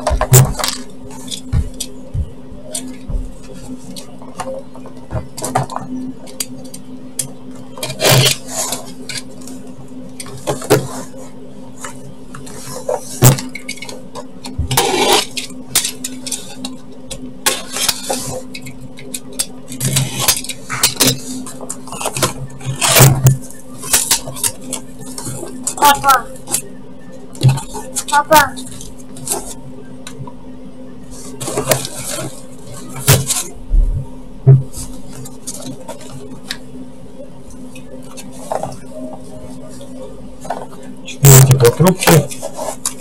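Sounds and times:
steady low hum: 0.0s - 43.0s
packing tape being cut: 7.8s - 9.0s.

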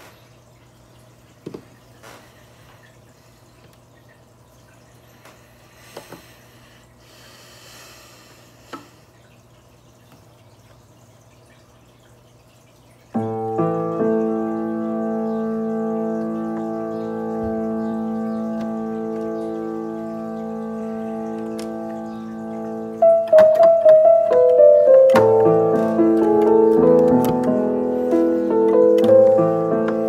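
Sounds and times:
low steady hum: 0.0s - 30.0s
electronic keyboard chord: 13.2s - 30.0s.

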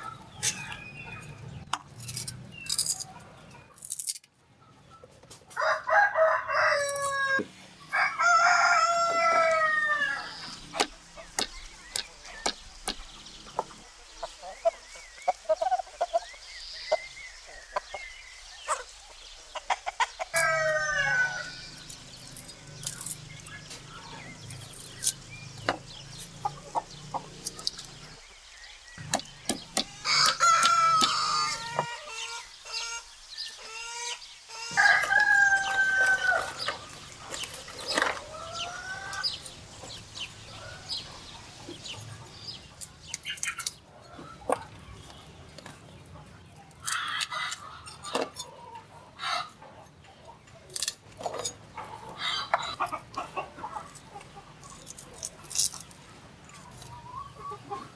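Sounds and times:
hens clucking: 5.1s - 17.0s, 22.6s - 28.2s, 29.0s - 55.4s, 56.0s - 57.9s
roosters crowing: 5.5s - 11.4s, 20.3s - 28.2s, 29.0s - 42.6s, 46.8s - 49.6s.

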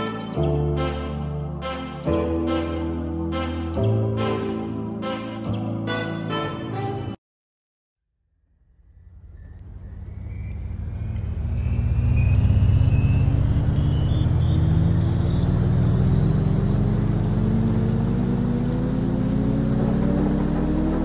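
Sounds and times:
deep rumbling drone rising in pitch: 8.2s - 21.0s.

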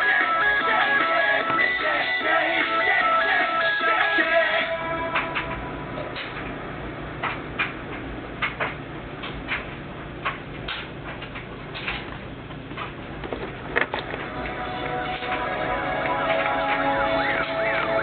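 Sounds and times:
song: 0.0s - 5.4s, 14.2s - 18.0s.

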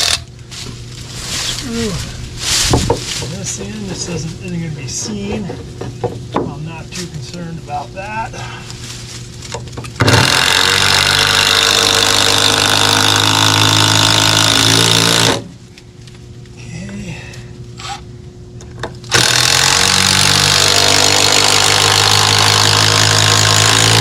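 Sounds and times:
power driver driving screws: 0.0s - 0.2s, 10.0s - 15.5s, 19.1s - 24.0s.

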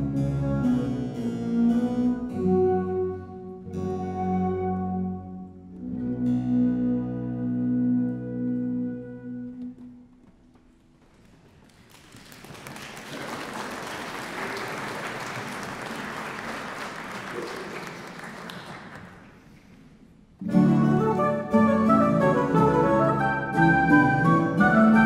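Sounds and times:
harpsichord and orchestra playing: 0.0s - 9.4s, 20.4s - 25.0s
audience applauding: 11.2s - 19.8s.

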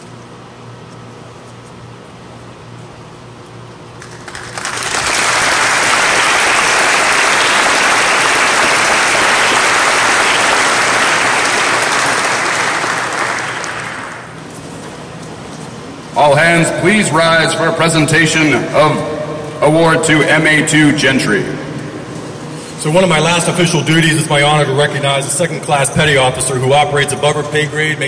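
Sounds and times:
low steady hum: 0.0s - 28.0s
audience applauding: 4.0s - 14.4s.

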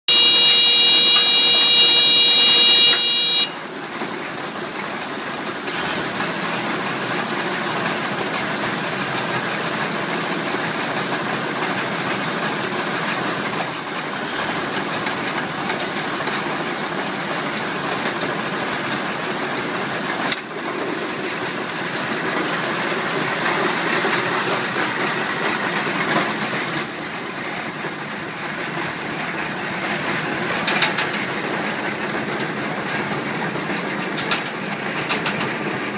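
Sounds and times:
loud steady high tone: 0.1s - 3.6s
tractor engine running: 0.1s - 35.9s
hay baler clattering: 3.8s - 35.9s.

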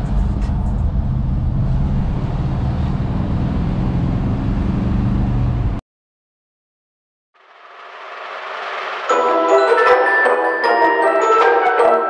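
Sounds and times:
engine droning inside cabin: 0.0s - 5.8s
road noise: 0.0s - 5.8s, 7.4s - 9.3s.

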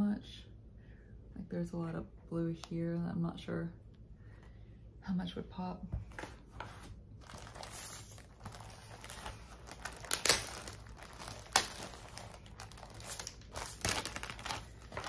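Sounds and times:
plastic packaging crinkling: 7.2s - 15.0s.

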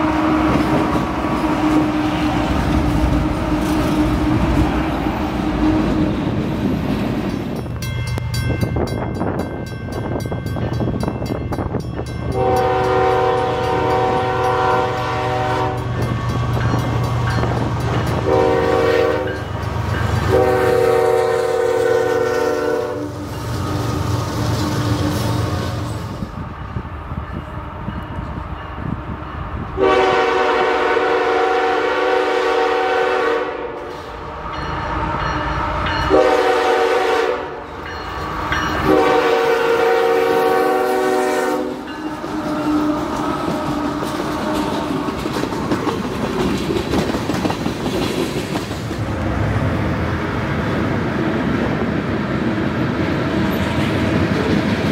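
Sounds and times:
freight cars rolling past: 0.0s - 8.6s, 41.7s - 54.9s
locomotive air horn blasts: 12.3s - 15.9s, 18.2s - 19.4s, 20.2s - 23.3s, 29.8s - 34.0s, 36.1s - 37.6s, 38.8s - 43.2s.

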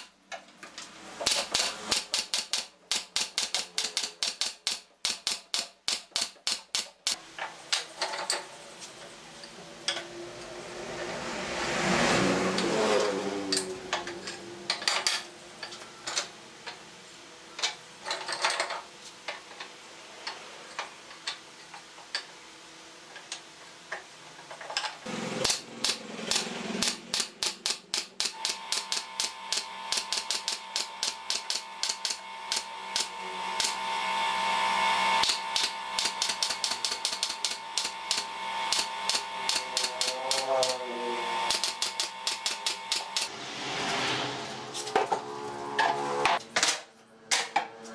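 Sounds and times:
brad nailer firing: 1.2s - 7.2s, 25.1s - 33.8s, 35.2s - 40.8s, 41.4s - 43.3s
steady whine: 25.1s - 47.7s.

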